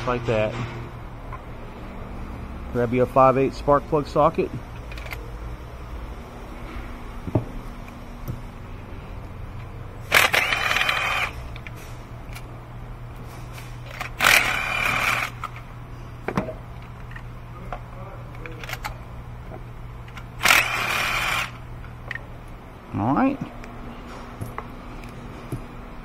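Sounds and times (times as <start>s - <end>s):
power tool motor whining: 10.1s - 11.4s, 13.9s - 15.6s, 20.4s - 21.6s.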